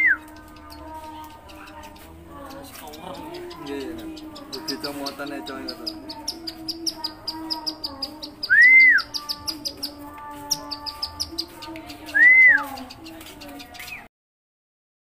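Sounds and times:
bird singing rattling high notes: 0.0s - 14.1s.

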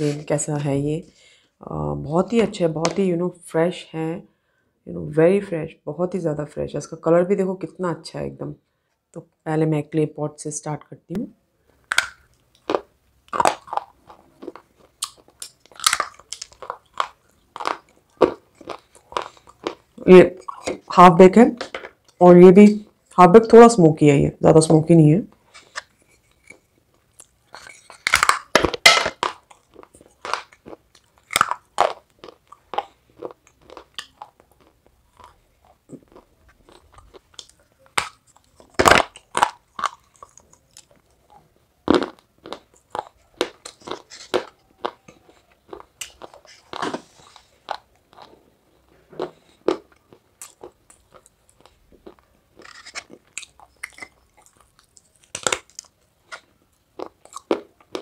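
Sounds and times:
biting and chewing clay: 11.7s - 21.0s, 25.4s - 58.0s.

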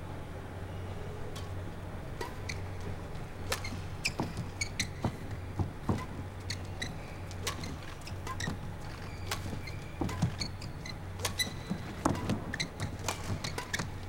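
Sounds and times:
low hall hum: 0.0s - 14.0s
shoes squeaking on court: 1.4s - 14.0s
rackets striking shuttlecock: 2.2s - 6.7s, 7.3s - 14.0s.

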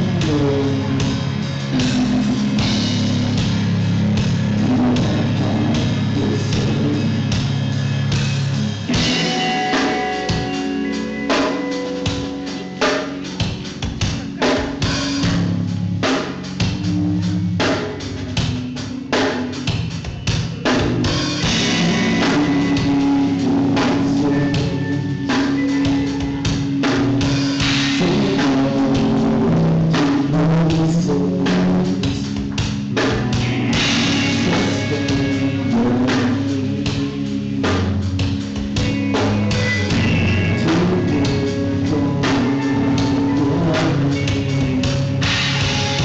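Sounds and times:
drum kit playing: 0.0s - 46.0s
electric guitars sustained notes: 0.0s - 46.0s.

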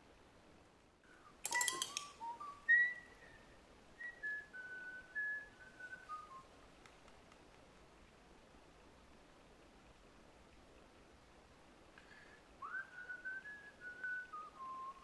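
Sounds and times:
clatter of clicks: 1.4s - 2.2s
person whistling a tune: 1.5s - 6.5s, 12.6s - 15.0s.

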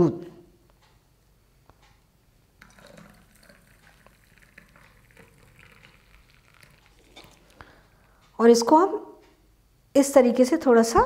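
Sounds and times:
milk trickling into tumbler: 2.6s - 8.1s.

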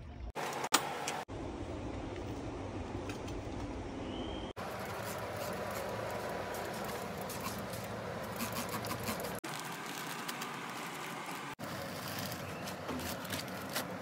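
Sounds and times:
plastic bag rustling: 4.6s - 14.0s.

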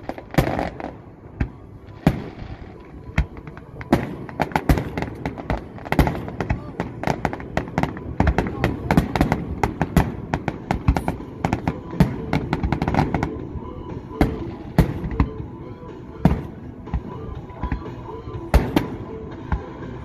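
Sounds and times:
fireworks bursting: 0.0s - 15.4s, 16.2s - 19.6s.

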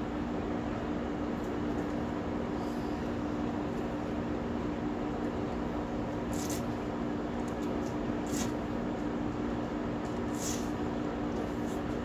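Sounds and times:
machine hum: 0.0s - 12.0s
soft hissing scuffs: 10.3s - 10.8s.

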